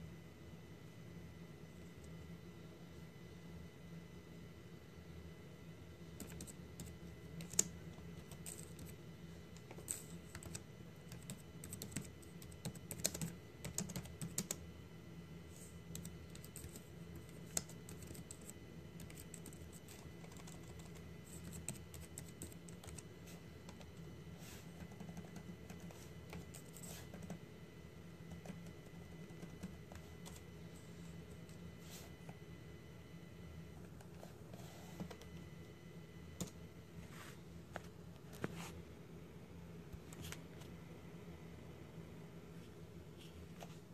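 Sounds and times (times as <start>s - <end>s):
faint low hum: 0.0s - 43.9s
keyboard typing: 6.2s - 14.6s, 15.9s - 23.1s, 24.8s - 27.4s, 28.3s - 30.4s, 36.4s - 36.6s.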